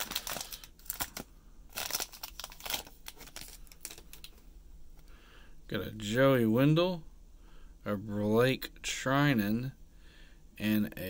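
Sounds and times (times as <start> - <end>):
plastic wrapper crinkling and tearing: 0.0 - 4.4.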